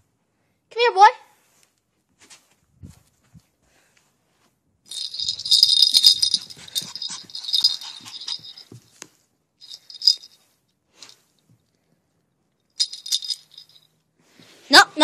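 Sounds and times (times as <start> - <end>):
metallic jingling and rattling: 4.9 - 9.0, 9.6 - 10.4, 12.8 - 13.9
puppy scuffing and clicks: 6.0 - 9.2.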